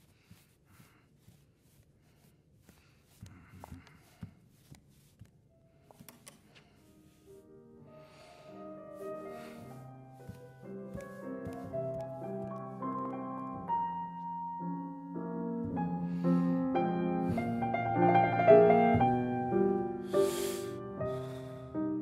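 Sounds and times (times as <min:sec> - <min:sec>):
classical piano music: 0:05.6 - 0:22.0.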